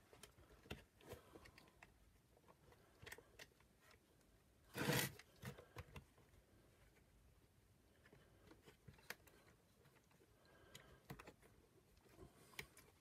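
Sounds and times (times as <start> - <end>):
plastic parts clicking and tapping: 0.0 - 4.0, 8.0 - 13.0
plastic scrape: 4.7 - 5.8.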